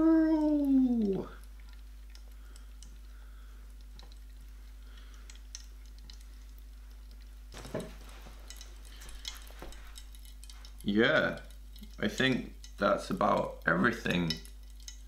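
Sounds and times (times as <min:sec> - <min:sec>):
light ticks: 0:00.4 - 0:03.1.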